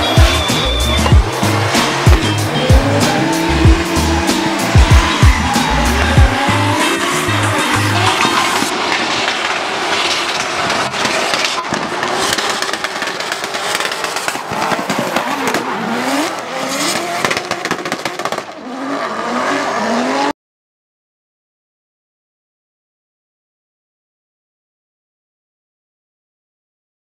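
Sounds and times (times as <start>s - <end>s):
tyres squealing: 0.0s - 8.7s
car engines revving: 0.0s - 20.3s.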